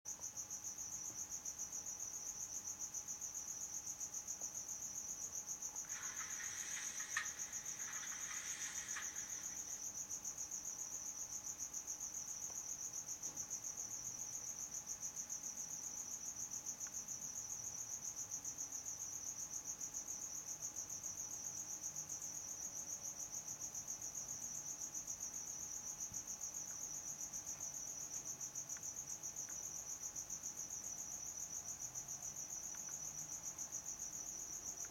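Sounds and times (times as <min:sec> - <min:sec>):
hissing rustle: 0:05.8 - 0:10.0.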